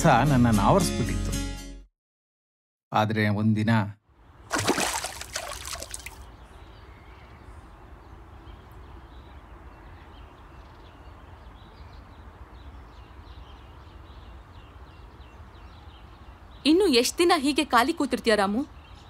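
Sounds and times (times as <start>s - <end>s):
small birds chirping: 4.2s - 19.0s.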